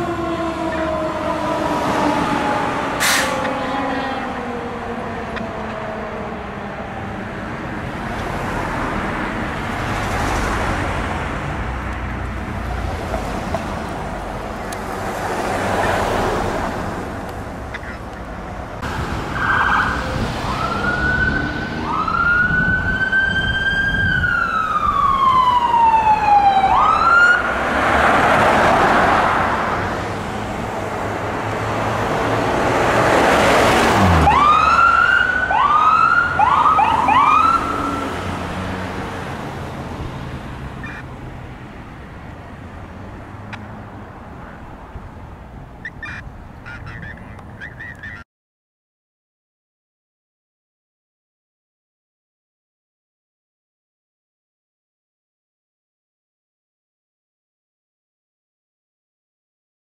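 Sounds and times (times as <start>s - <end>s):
emergency siren wail and yelp: 0.0s - 9.6s, 18.8s - 41.2s
fire engine pulling away: 0.0s - 10.1s, 18.8s - 40.8s
rush of vehicle passing: 0.0s - 47.6s.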